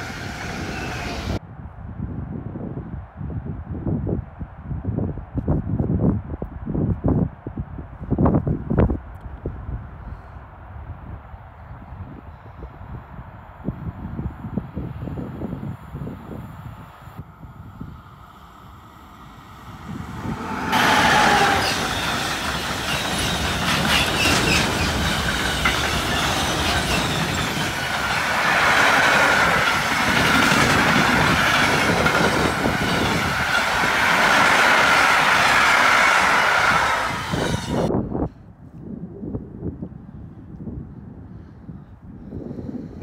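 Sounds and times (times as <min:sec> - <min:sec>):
train wheels rushing on rails: 0:00.0 - 0:01.4, 0:18.3 - 0:37.9
high ringing wheel squeal: 0:20.8 - 0:28.1
wheels clacking over rail joints: 0:20.8 - 0:37.8.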